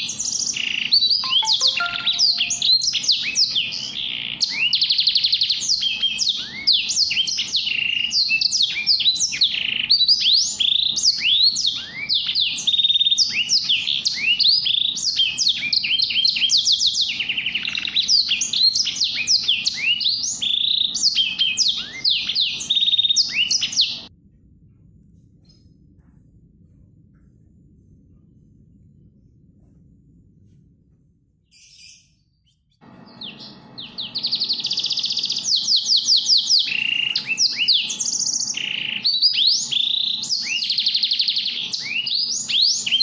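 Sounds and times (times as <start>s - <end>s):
songbird singing chirps and trills: 1.0s - 3.0s.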